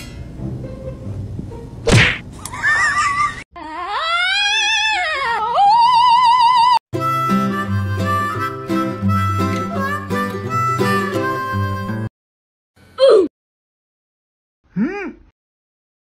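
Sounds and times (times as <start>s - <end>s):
sharp whack: 1.8s - 2.3s
cat crying and yowling: 3.6s - 6.8s.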